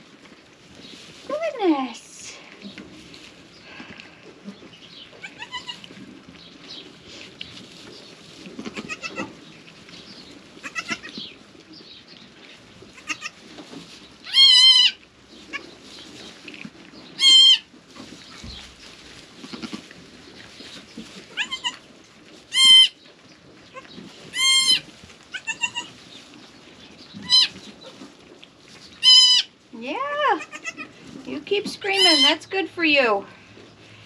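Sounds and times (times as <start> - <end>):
goat kids bleating: 5.1 - 6.0, 8.6 - 9.3, 10.6 - 11.2, 12.9 - 13.4, 14.2 - 15.7, 17.2 - 17.7, 19.4 - 19.9, 21.3 - 21.8, 22.5 - 23.0, 23.7 - 26.0, 27.2 - 27.6, 29.0 - 29.5, 30.3 - 31.0.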